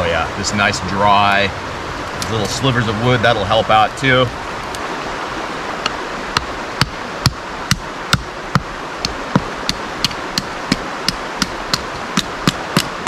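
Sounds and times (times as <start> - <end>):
creek rushing: 0.0 - 13.0
rock knocking knife through wood: 9.4 - 13.0.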